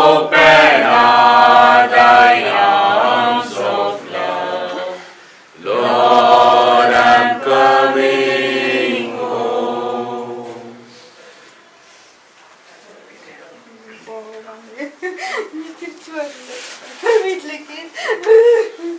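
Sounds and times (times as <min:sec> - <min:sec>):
group singing a hymn: 0:00.0 - 0:11.2.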